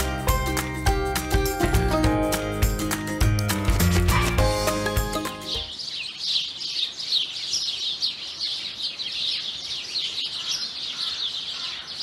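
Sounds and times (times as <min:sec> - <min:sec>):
small songbirds twittering: 0:04.6 - 0:12.0.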